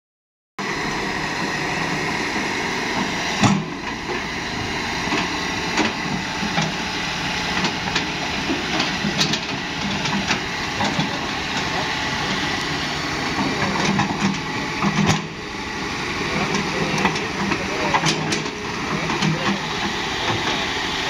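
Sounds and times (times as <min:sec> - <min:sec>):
excavator diesel engine running: 0:00.6 - 0:21.0
metal clanks and knocks: 0:13.4 - 0:15.3.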